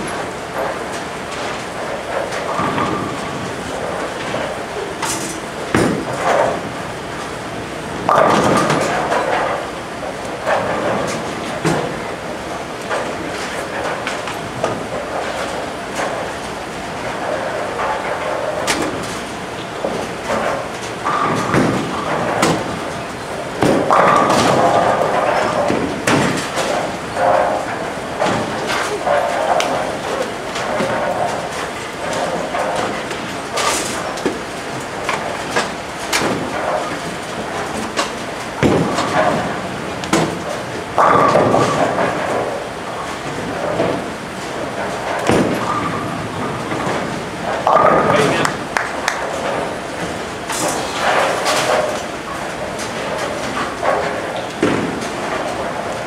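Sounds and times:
bowling ball rolling: 0.0 - 56.0
rumble of other bowling lanes: 0.0 - 56.0
ball crashing into pins: 37.8 - 42.6.

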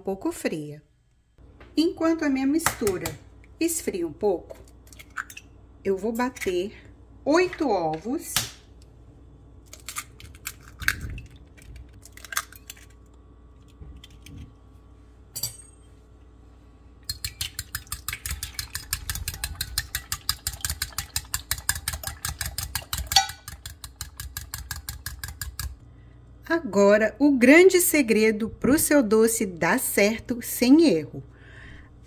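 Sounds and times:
fork beating eggs in glass: 17.1 - 25.8.

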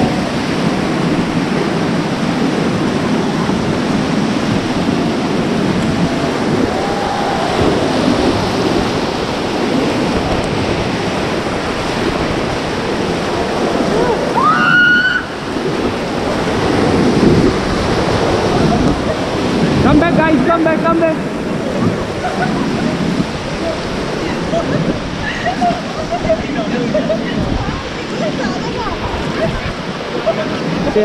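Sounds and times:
whitewater rapids rushing: 0.0 - 31.0
faint shouts: 6.7 - 7.9.

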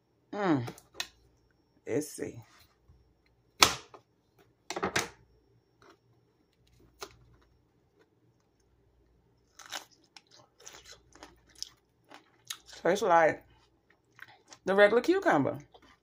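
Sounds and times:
person chewing crunchy cucumber: 9.4 - 14.6, 15.6 - 16.0.

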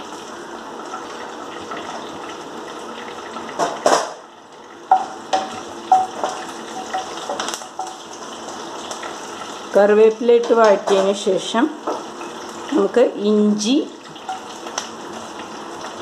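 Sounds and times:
leaves sizzling in hot oil: 0.0 - 16.0
knocks on pan: 3.6 - 4.2, 4.9 - 8.0.

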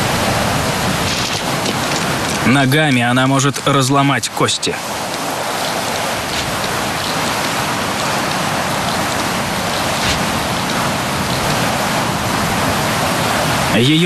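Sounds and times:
rain falling: 0.0 - 14.0
faint raindrop ticks: 4.8 - 12.6.

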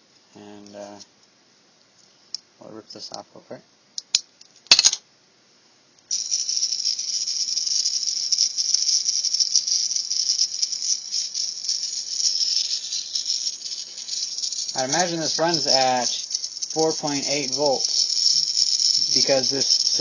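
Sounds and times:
buzzy high-pitched sound chip: 6.2 - 20.0.

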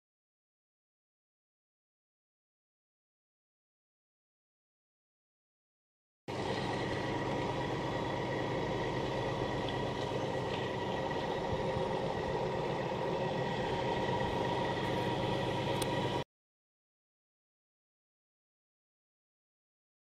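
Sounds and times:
diesel truck engine running: 6.3 - 16.2.

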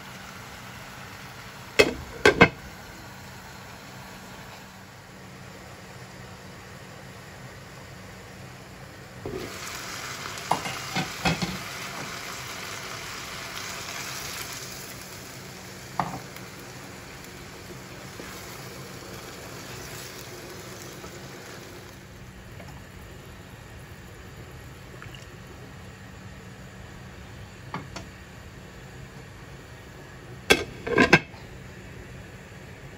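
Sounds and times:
food sizzling in a pan: 0.0 - 4.9, 9.2 - 23.0.

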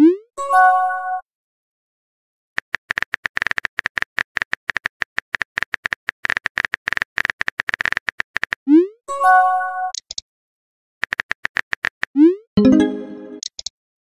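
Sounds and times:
electronic chime tones: 12.6 - 13.4.

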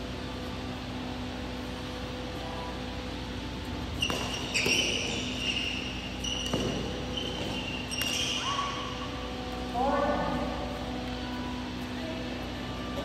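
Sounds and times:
steady hall hum: 0.0 - 13.0
shoes squeaking on court: 3.8 - 9.6
racket hitting shuttlecock: 4.0 - 9.0.

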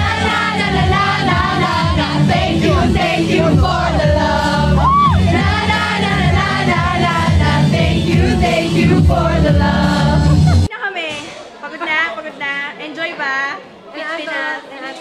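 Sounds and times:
crowd singing along: 0.0 - 10.7
pop music with heavy bass: 0.0 - 10.7
person whooping: 4.8 - 5.2.

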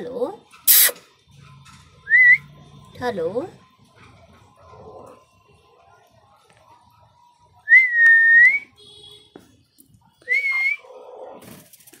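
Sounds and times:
whistled notes: 10.2 - 10.8.

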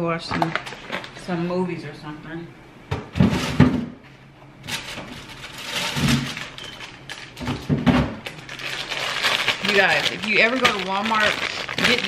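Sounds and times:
rustling of groceries: 0.3 - 1.4, 4.7 - 12.0.

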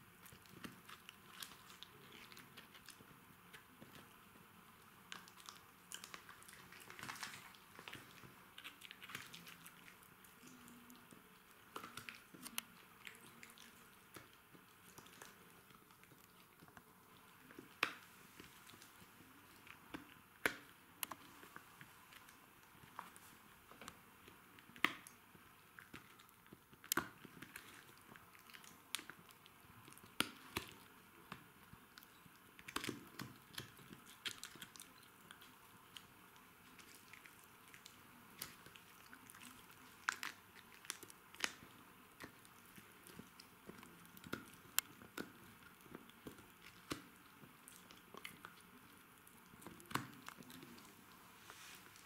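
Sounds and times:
dog gnawing chew stick: 0.1 - 4.2, 5.0 - 52.0.

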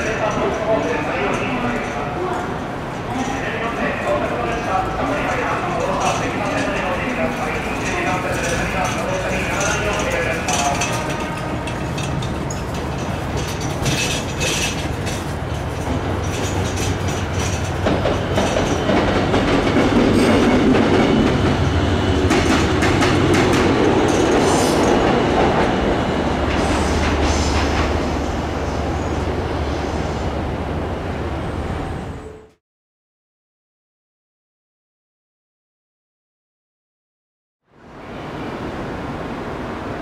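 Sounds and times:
wheels clattering over rail joints: 0.0 - 28.1
rail rumble: 0.0 - 32.5
diesel locomotive engine hum: 0.1 - 32.5.

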